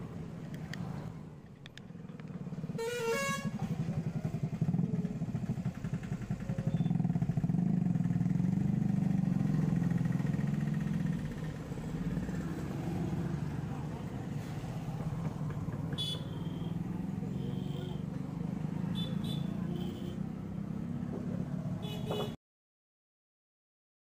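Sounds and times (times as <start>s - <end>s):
vehicle engine running: 0.0s - 21.6s
short horn: 2.8s - 3.7s.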